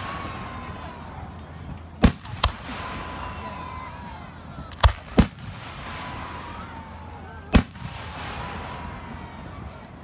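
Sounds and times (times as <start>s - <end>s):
fireworks bangs: 7.5s - 9.3s.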